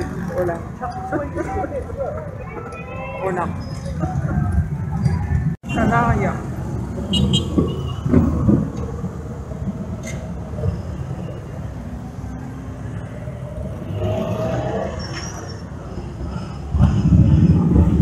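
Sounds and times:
motorcycle engines rumbling: 0.0s - 18.0s.

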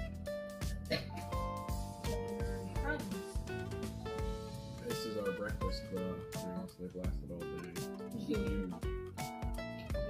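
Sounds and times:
guitar music with steady beat: 0.0s - 10.0s.

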